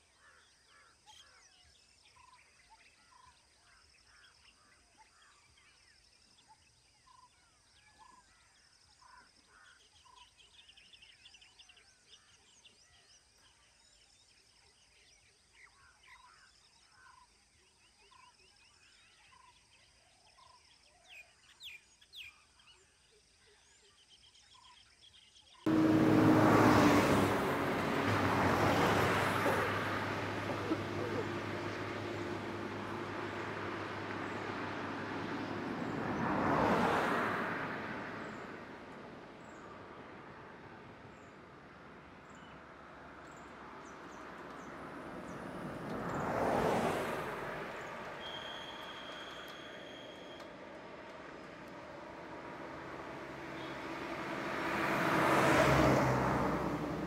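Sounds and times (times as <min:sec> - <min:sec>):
faint birdsong: 0:00.0 - 0:57.0
lorry driving past: 0:25.7 - 0:57.0.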